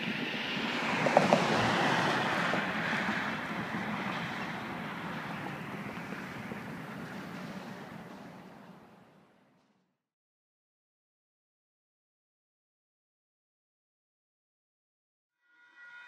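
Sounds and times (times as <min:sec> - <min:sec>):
freight train rumbling: 0:00.0 - 0:09.4
train clanks: 0:00.8 - 0:09.1.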